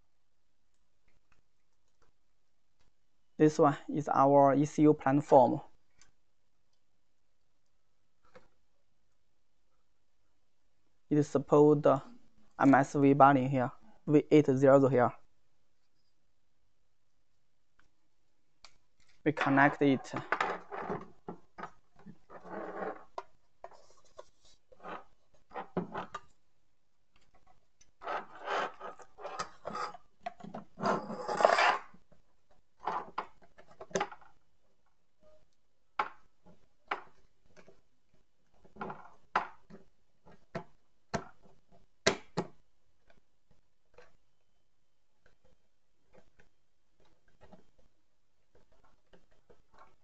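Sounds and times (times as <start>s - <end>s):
metal rubbing and scraping: 28.0s - 30.1s, 30.8s - 31.9s.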